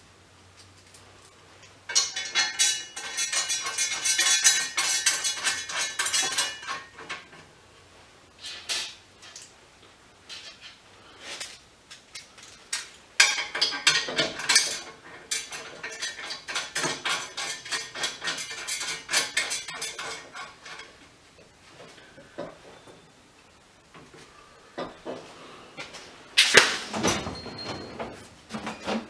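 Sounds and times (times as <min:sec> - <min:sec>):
steel parts clanking: 0:01.9 - 0:07.4, 0:12.0 - 0:21.0.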